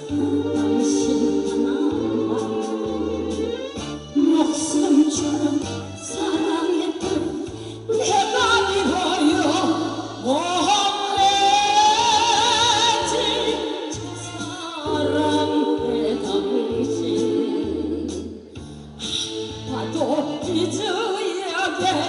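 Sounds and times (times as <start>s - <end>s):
backing music with pulsing bass: 0.0s - 21.0s
woman singing into a microphone: 4.2s - 18.0s, 19.1s - 22.0s.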